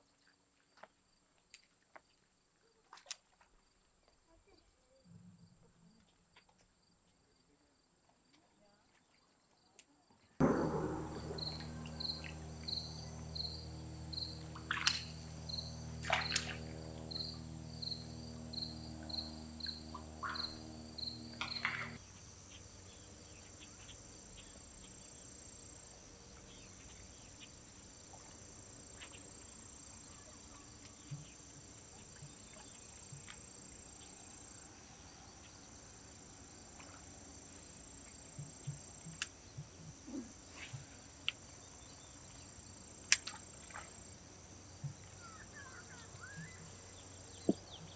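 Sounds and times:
sharp clicks: 10.4 - 22.0
mechanical hum: 10.4 - 47.9
crickets and insects calling: 11.0 - 47.9.

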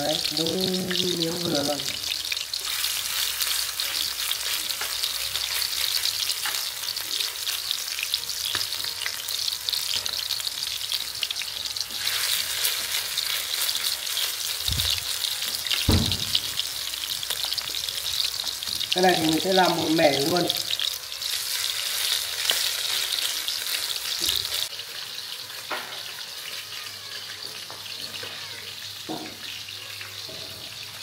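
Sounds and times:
meat patties sizzling in oil: 0.0 - 31.0.

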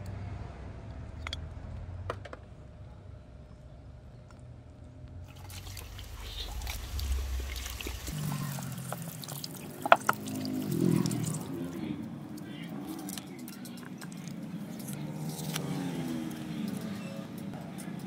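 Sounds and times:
hose water splashing on metal: 5.3 - 11.6.

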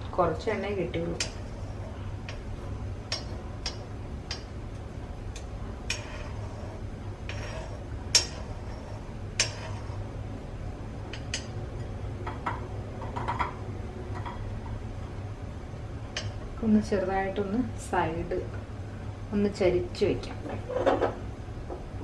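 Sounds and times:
spoon scraping iron pan: 5.8 - 10.1.

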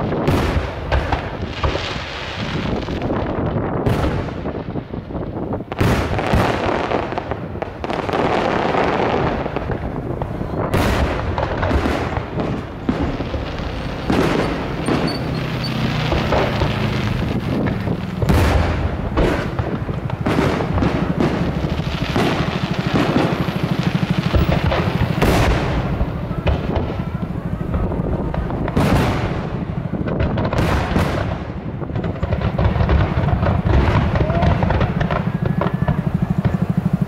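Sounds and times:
rumbling and crackling: 0.0 - 37.0
firework shells bursting: 7.2 - 27.2.

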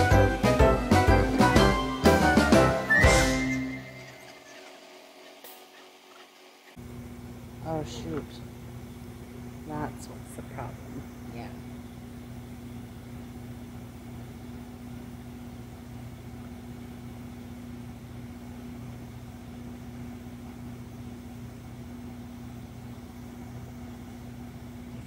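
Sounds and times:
truck engine idling: 0.0 - 5.3.

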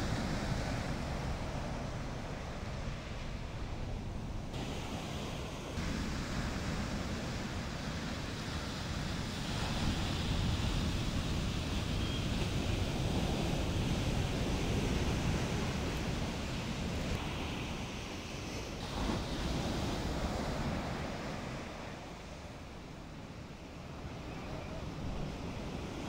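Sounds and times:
wind buffeting microphone: 0.0 - 23.2
ocean waves breaking: 0.0 - 26.0.

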